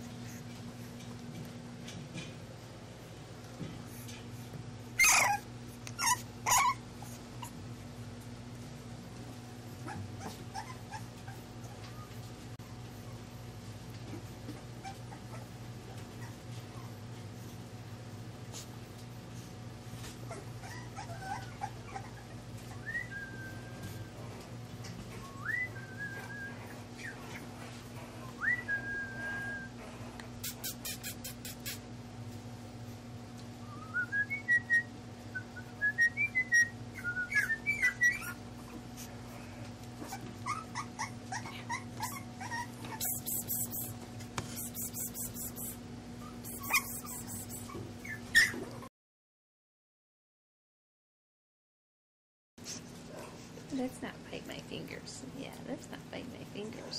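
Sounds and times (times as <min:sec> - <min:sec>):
steady low hum: 0:00.0 - 0:48.8
puppy whining and whimpering: 0:04.9 - 0:07.6, 0:09.6 - 0:13.4, 0:14.5 - 0:17.5, 0:20.0 - 0:31.7, 0:33.6 - 0:44.0, 0:44.6 - 0:48.9.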